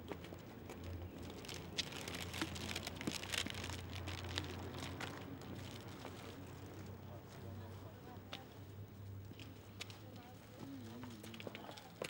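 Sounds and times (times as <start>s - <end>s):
crinkling rustles: 1.2s - 6.4s.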